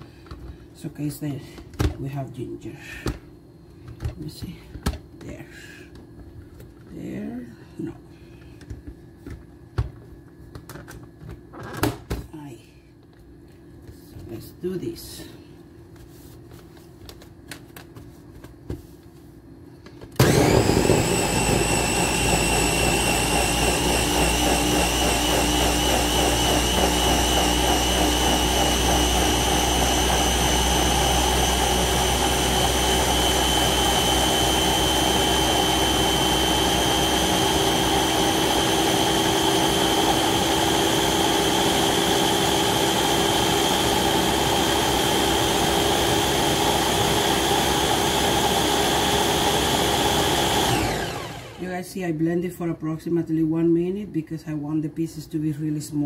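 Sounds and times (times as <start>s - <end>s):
blender motor whining: 20.2s - 51.7s.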